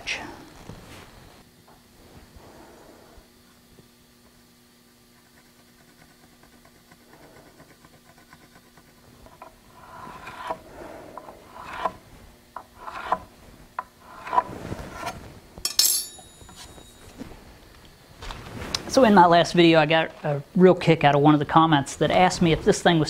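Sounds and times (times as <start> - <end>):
wood scraping against wood: 5.3 - 12.0, 12.6 - 15.3
metallic clink: 15.6 - 17.1.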